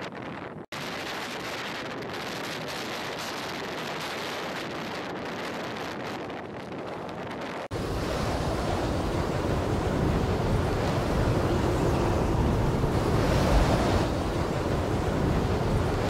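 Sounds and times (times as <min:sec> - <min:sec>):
blizzard wind blowing: 0:00.0 - 0:16.0
wind buffeting microphone: 0:00.0 - 0:16.0.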